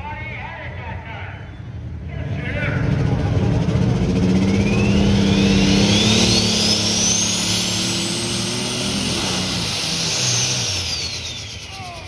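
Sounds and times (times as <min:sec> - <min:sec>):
diesel engine running under load: 0:01.0 - 0:12.0
high turbo whistle: 0:04.4 - 0:12.0.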